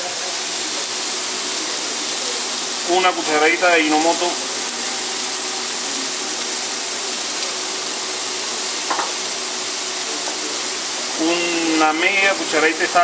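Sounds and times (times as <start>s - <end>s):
onion and tomato sizzling in pan: 0.0s - 13.0s.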